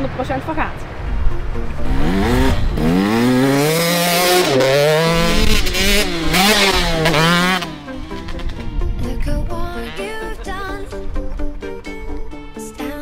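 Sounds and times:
music: 0.5s - 3.5s, 6.8s - 13.0s
motorbike engine revving: 1.7s - 10.4s.

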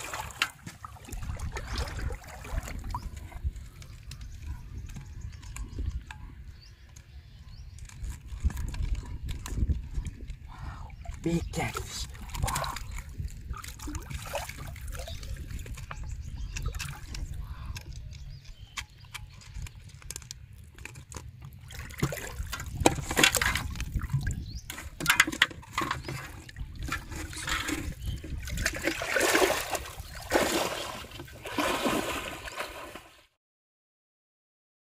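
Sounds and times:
fish thrashing in water: 0.0s - 3.6s, 11.0s - 18.0s, 20.6s - 33.2s.

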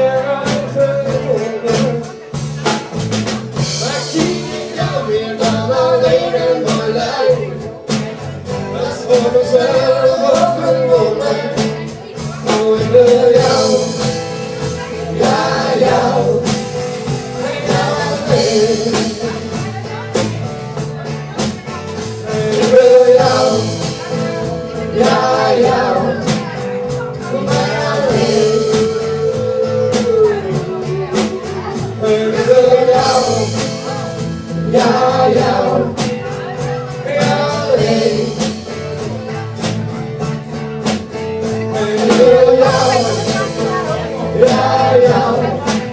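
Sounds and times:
live rock band: 0.0s - 45.9s
man singing lead: 0.0s - 45.9s
woman singing: 8.8s - 16.6s, 22.2s - 38.6s, 41.7s - 45.9s.

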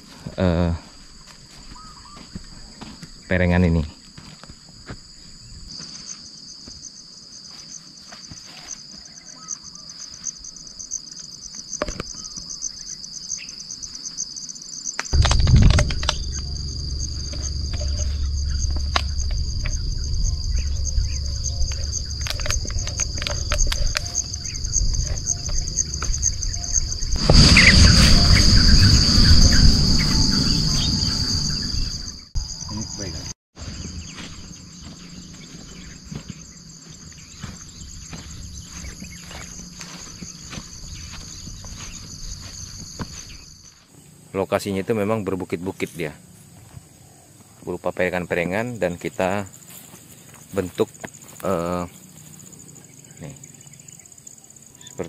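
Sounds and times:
insect chorus trilling: 0.0s - 55.0s
low rumble: 15.2s - 32.2s.

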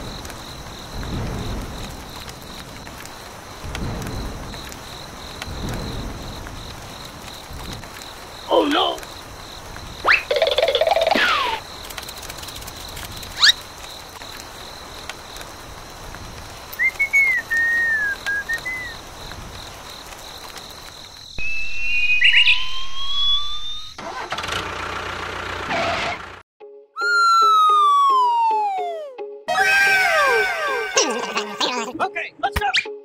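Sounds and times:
outdoor background noise: 0.0s - 26.4s
cartoon whistle tones: 16.8s - 19.0s, 21.4s - 24.0s, 27.0s - 31.1s
cartoon rising chirp: 21.4s - 24.0s, 27.0s - 31.6s
cartoon warbling call: 27.0s - 32.0s.

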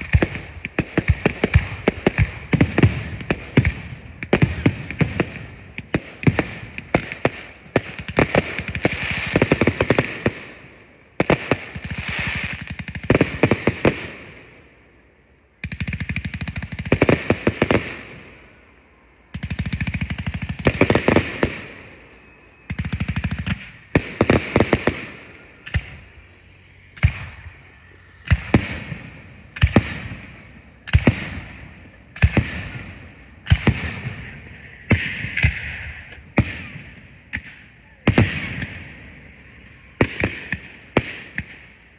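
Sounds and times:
firework bangs: 0.0s - 14.7s, 15.8s - 18.6s, 19.4s - 26.3s, 27.0s - 41.8s
fireworks launching and bursting: 0.0s - 14.8s, 15.6s - 18.6s, 19.3s - 41.8s.

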